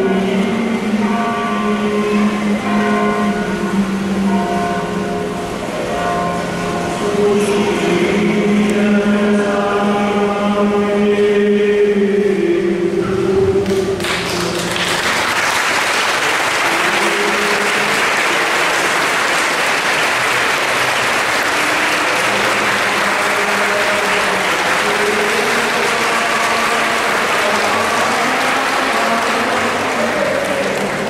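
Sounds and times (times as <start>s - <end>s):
group singing: 0.0s - 2.7s, 7.0s - 14.0s, 20.9s - 31.0s
congregation applauding: 13.6s - 31.0s.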